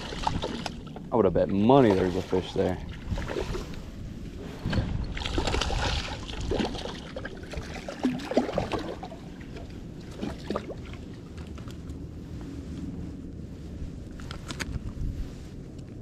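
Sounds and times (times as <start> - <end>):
water splashing: 0.0 - 11.2
fish thrashing at surface: 4.6 - 9.1
rod and reel handling noise: 14.1 - 15.1.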